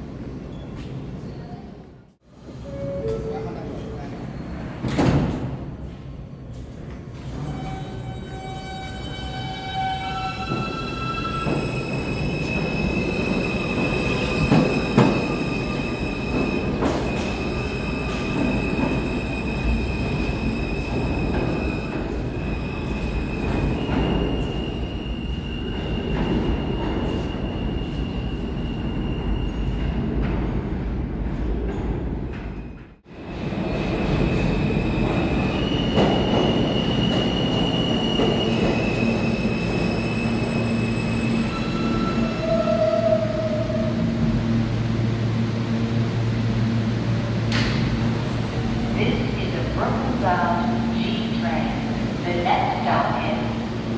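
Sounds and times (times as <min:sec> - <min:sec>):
subway train rumbling: 0:00.0 - 0:53.9
train wheel squeal: 0:07.4 - 0:29.8, 0:34.1 - 0:43.8.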